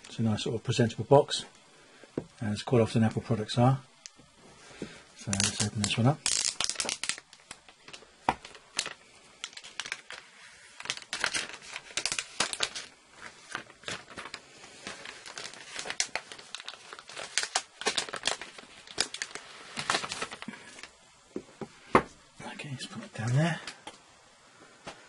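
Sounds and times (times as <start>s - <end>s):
plastic shrink-wrap tearing and crinkling: 5.2s - 21.0s.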